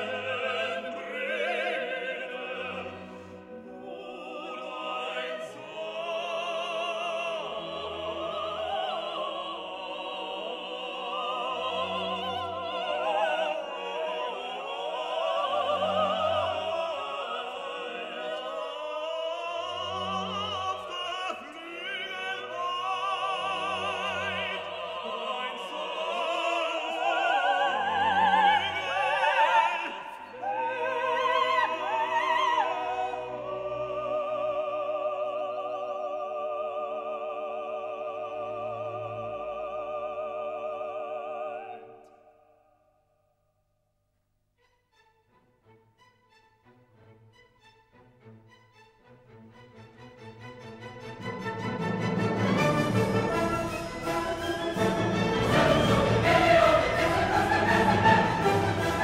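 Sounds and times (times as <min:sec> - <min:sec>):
operatic singing with vibrato: 0:00.0 - 0:42.7, 0:49.5 - 0:59.0
orchestra playing: 0:44.6 - 0:59.0.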